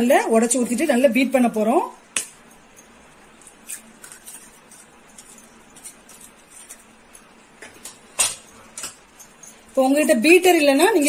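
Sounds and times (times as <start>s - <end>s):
eggshell crackling: 2.1s - 8.1s.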